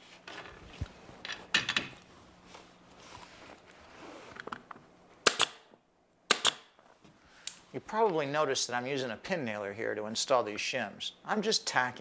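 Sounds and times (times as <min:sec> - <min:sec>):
pin nailer pops: 0:05.2 - 0:05.7, 0:06.3 - 0:06.7.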